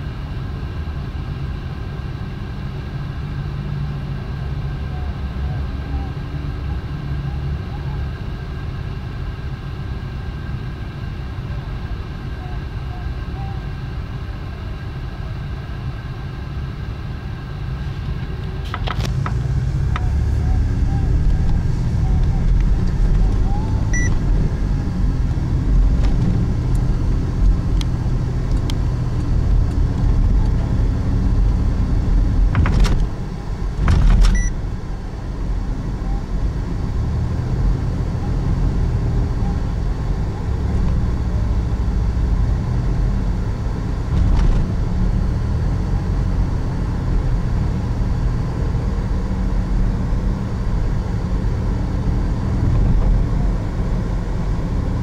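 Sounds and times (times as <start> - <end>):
car cabin road rumble: 0.0 - 55.0
car hitting bumps: 32.4 - 34.4.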